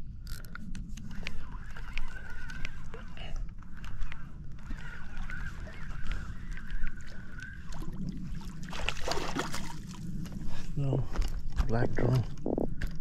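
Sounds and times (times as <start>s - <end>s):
fishing reel whirring with clicks: 0.2s - 3.0s
water splashing: 4.6s - 10.0s.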